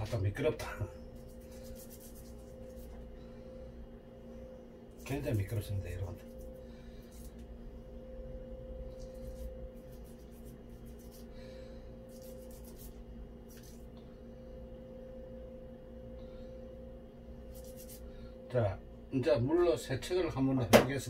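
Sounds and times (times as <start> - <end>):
low electrical hum: 0.0 - 21.0
scratchy rubbing on metal: 1.2 - 2.9, 9.0 - 11.3, 12.1 - 13.8, 17.5 - 18.0.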